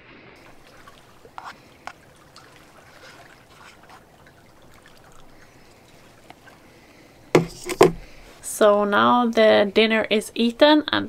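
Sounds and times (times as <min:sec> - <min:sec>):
lake water lapping: 0:00.4 - 0:08.5
spoon tapping cooking pot: 0:07.4 - 0:08.1.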